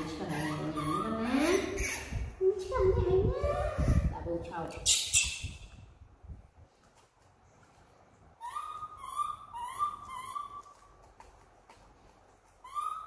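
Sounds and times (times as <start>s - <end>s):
infant monkey cooing: 8.4s - 10.7s, 12.6s - 13.0s.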